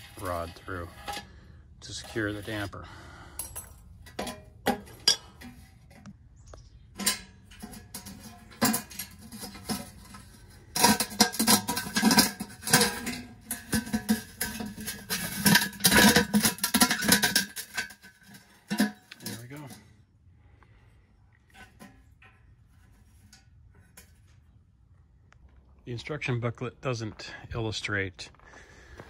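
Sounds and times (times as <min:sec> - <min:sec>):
metal clinking and rattling: 0:03.3 - 0:06.1, 0:07.0 - 0:20.0.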